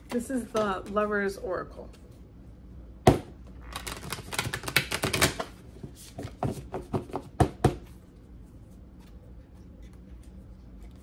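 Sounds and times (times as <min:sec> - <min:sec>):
cards shuffling clicks: 0:03.7 - 0:05.5.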